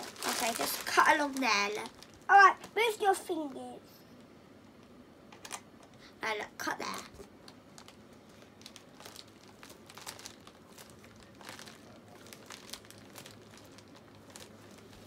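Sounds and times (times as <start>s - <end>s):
plastic bag crinkling: 0.0s - 3.5s, 7.4s - 15.0s.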